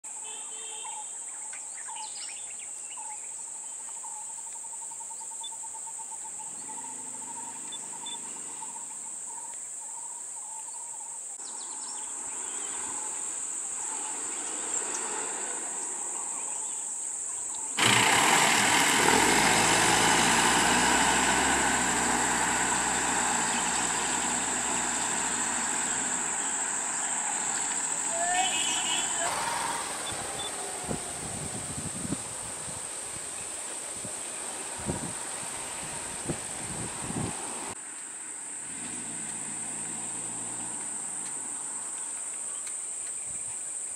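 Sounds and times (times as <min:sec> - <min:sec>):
pulsing insect call: 0:00.2 - 0:17.9, 0:20.8 - 0:37.2
vehicle engine running: 0:17.8 - 0:31.9.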